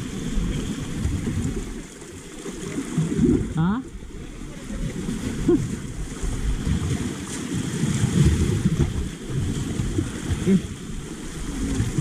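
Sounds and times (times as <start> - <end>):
sea waves washing over rocks: 0.0 - 12.0
wind buffeting microphone: 2.7 - 12.0.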